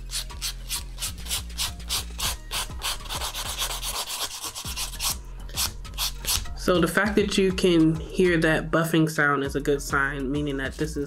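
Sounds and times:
nail buffer rubbing: 0:00.0 - 0:06.5.

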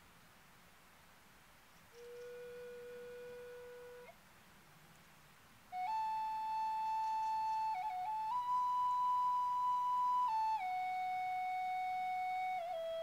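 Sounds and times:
flute holding slow notes: 0:01.9 - 0:04.2, 0:05.7 - 0:13.0.

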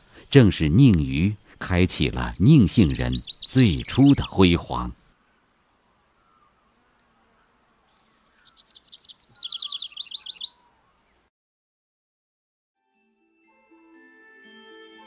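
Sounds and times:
bird chirping: 0:01.9 - 0:05.0, 0:07.9 - 0:11.3.

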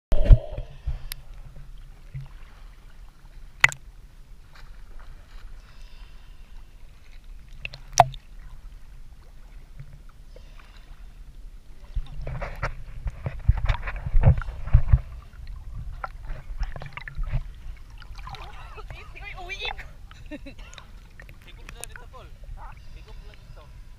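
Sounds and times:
small waves lapping: 0:00.6 - 0:23.9
steady low rumble: 0:11.2 - 0:23.9.

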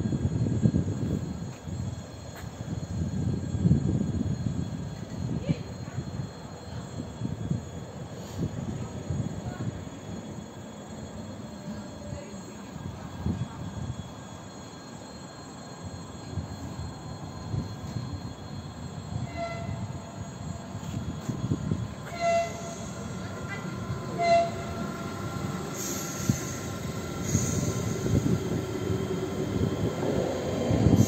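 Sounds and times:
electric train rumbling past: 0:00.0 - 0:31.0
wheels rumbling on rails: 0:15.6 - 0:31.0
electric train horn toots: 0:19.2 - 0:20.1, 0:22.0 - 0:25.2.

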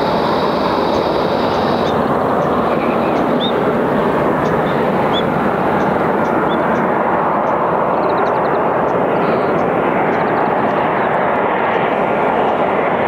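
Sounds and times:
high thin whine: 0:00.0 - 0:07.2
jet engines roaring: 0:00.0 - 0:13.0.

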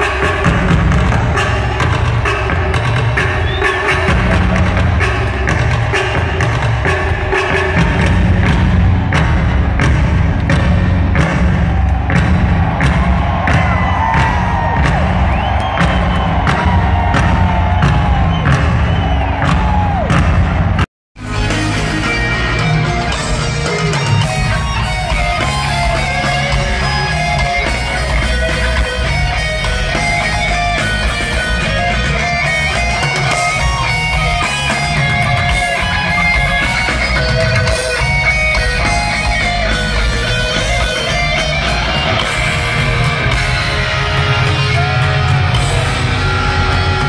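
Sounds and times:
heavy metal band playing: 0:00.0 - 0:47.0
electric guitar riffing: 0:21.2 - 0:47.0.

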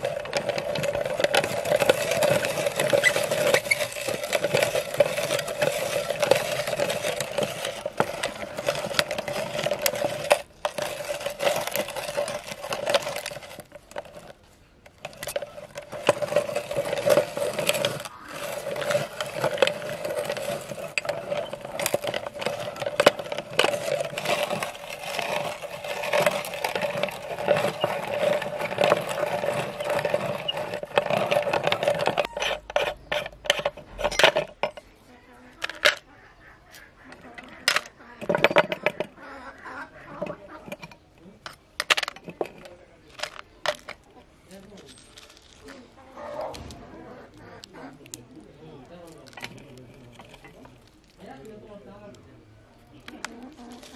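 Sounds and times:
meat grinder crushing hard candy: 0:00.0 - 0:34.7
metal clicks and knocks: 0:00.0 - 0:34.9, 0:37.4 - 0:39.2, 0:40.2 - 0:44.1.

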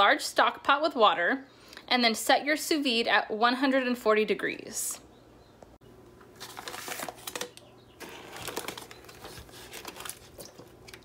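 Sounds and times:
plastic bag crinkling: 0:06.3 - 0:11.0.

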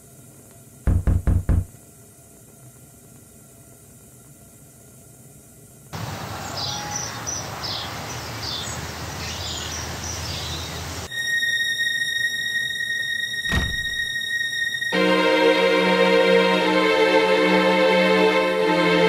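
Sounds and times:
outdoor noise bed: 0:00.0 - 0:19.0
small birds chirping: 0:06.4 - 0:11.1
eerie music of sustained tones: 0:11.1 - 0:19.0.

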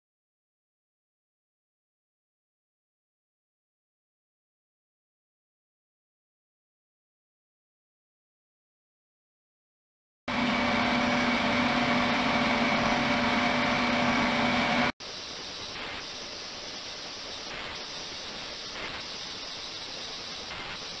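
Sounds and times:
ultrasonic water hiss: 0:15.0 - 0:21.0.

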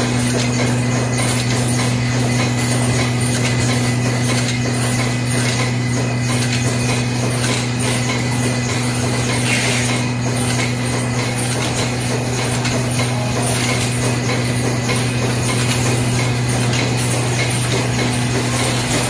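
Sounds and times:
machine low hum: 0:00.0 - 0:19.0
mechanical clatter: 0:00.0 - 0:19.0.

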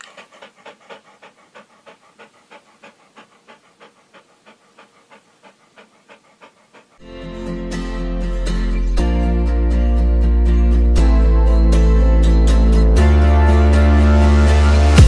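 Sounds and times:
dog panting rapidly: 0:00.0 - 0:07.6
acoustic guitar music: 0:07.0 - 0:15.0.

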